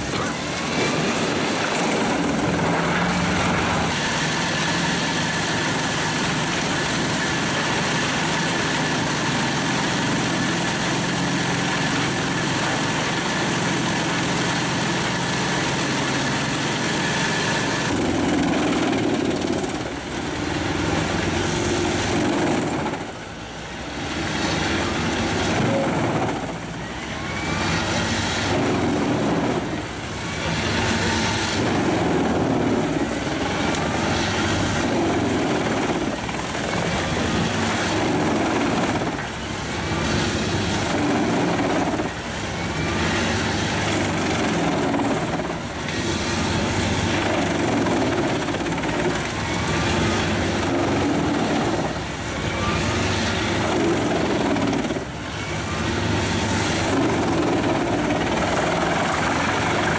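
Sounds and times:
wood chipper chipping branches: 0:00.0 - 0:59.9.

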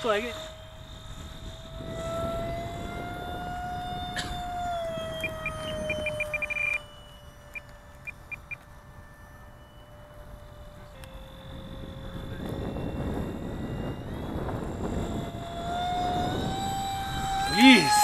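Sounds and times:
electric ducted fan whining: 0:00.0 - 0:18.0
short electronic beeps: 0:05.9 - 0:08.6.

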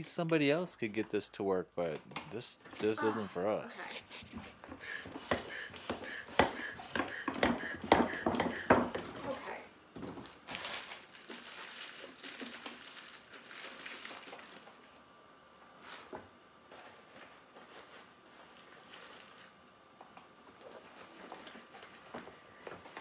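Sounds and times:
fabric and plastic rustling: 0:10.0 - 0:15.1, 0:15.8 - 0:23.0.

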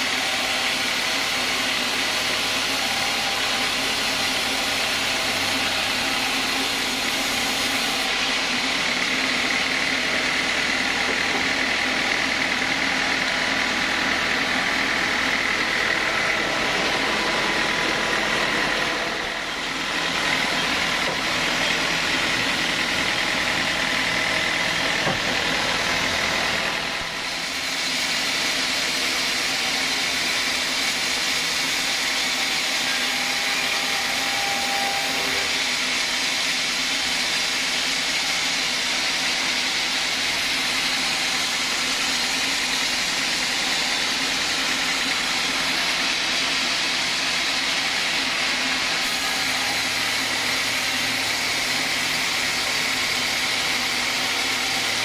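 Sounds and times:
band saw cutting through log: 0:00.0 - 0:55.0.

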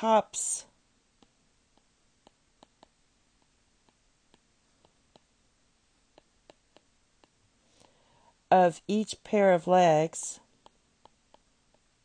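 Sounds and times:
stylus tapping on tablet: 0:01.2 - 0:05.3, 0:06.1 - 0:07.4, 0:10.6 - 0:12.0.

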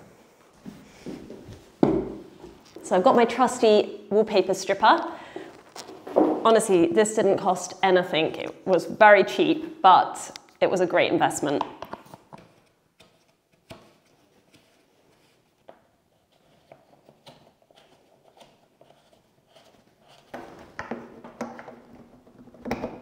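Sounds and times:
plastic clicks and knocks: 0:20.4 - 0:23.0.

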